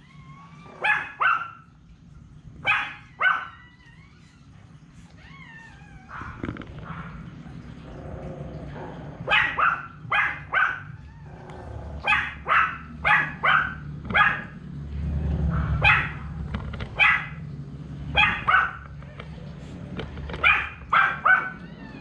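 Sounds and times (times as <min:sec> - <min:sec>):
dog barking: 0:00.7 - 0:01.7, 0:02.6 - 0:03.6, 0:09.2 - 0:11.0, 0:12.0 - 0:14.6, 0:15.5 - 0:16.3, 0:17.0 - 0:17.4, 0:18.1 - 0:19.0, 0:20.4 - 0:21.6.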